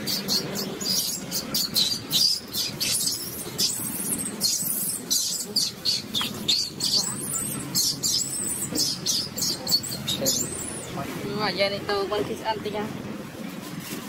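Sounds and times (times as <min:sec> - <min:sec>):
baby monkey squeaking: 0:00.0 - 0:10.9.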